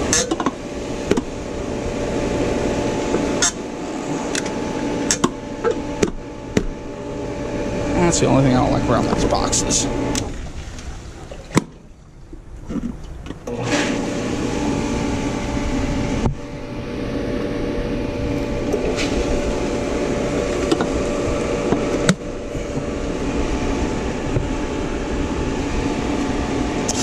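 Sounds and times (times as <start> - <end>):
pool pump motor running: 0.0 - 27.0
water moving through pipes: 0.0 - 27.0.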